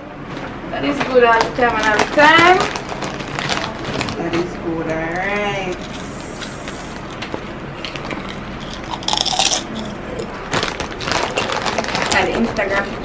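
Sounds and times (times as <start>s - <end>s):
paper bag rustling: 1.4s - 8.9s, 9.8s - 12.9s.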